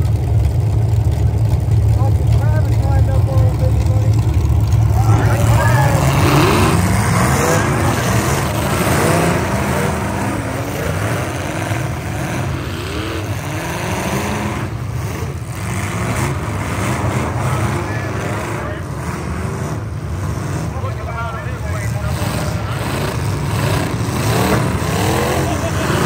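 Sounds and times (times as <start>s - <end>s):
car engines revving: 0.0s - 26.0s.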